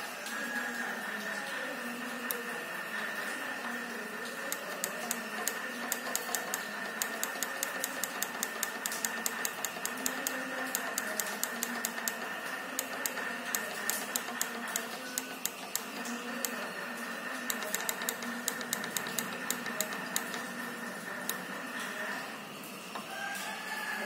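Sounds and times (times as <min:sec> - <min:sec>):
power supply fan hiss: 0:01.2 - 0:23.0
quick irregular clicking: 0:04.5 - 0:16.6, 0:17.5 - 0:20.6.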